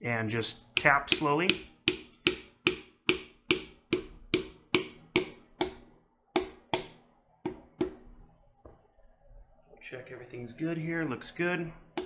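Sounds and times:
hammer handle tapping piston: 0.6 - 8.0.

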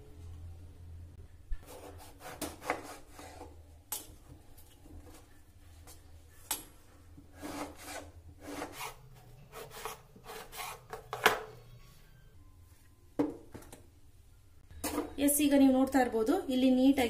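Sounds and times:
knife scraping through eggplant: 1.6 - 3.6, 7.3 - 11.1.

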